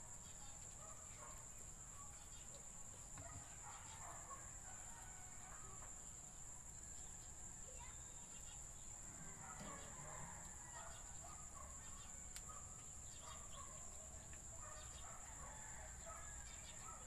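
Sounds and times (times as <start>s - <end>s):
faint bird chirps: 6.9s - 17.0s.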